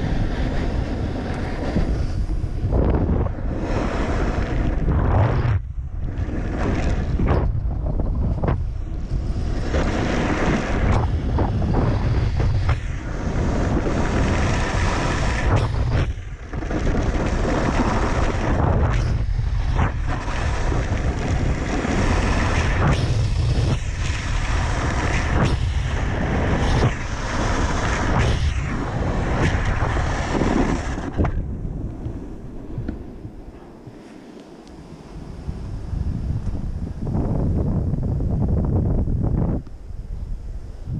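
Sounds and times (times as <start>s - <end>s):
wind buffeting microphone: 0.0s - 34.1s, 34.9s - 40.9s.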